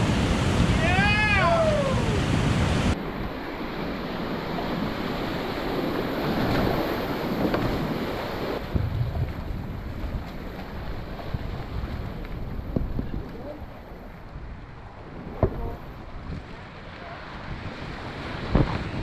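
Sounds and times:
rushing whitewater: 0.0s - 8.7s
wind buffeting microphone: 0.0s - 19.0s.

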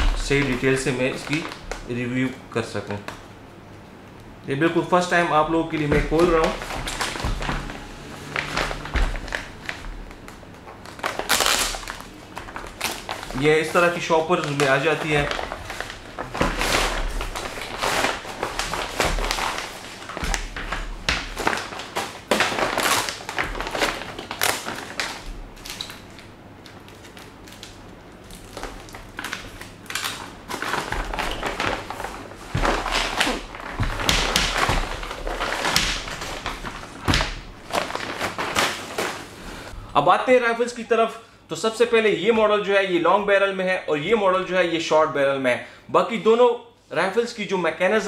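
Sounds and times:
plastic sleeves rustling: 0.0s - 3.3s, 4.9s - 39.8s.

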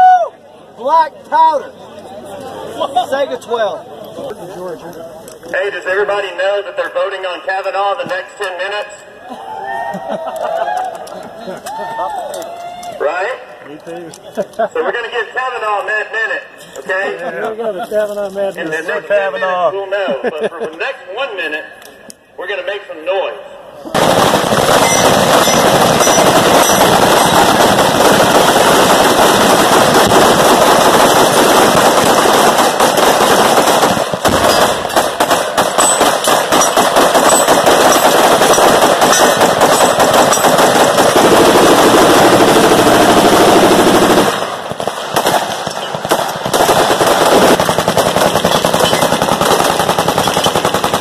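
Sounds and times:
rapid gunfire: 23.9s - 51.0s.

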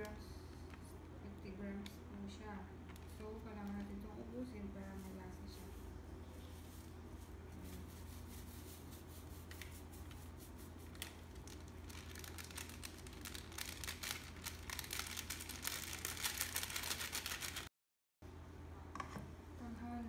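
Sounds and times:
steady low hum: 0.0s - 17.6s
packet crinkling: 10.7s - 17.7s.

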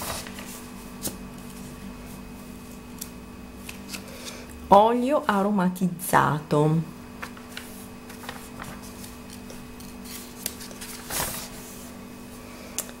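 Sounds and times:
magazine pages turning: 0.0s - 1.8s, 2.6s - 4.4s, 7.2s - 11.9s.

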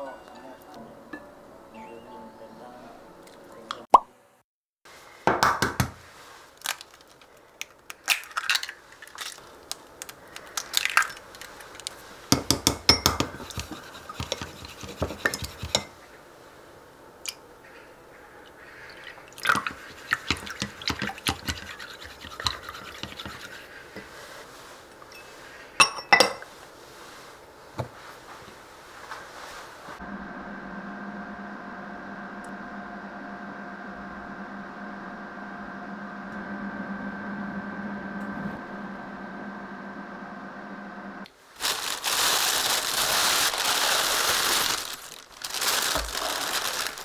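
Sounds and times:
chopsticks beating eggs in bowl: 10.3s - 15.9s, 19.4s - 24.2s.

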